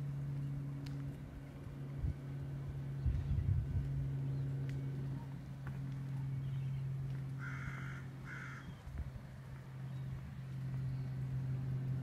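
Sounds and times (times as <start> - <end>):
vehicle engine idling: 0.0 - 12.0
crow cawing: 7.4 - 8.8.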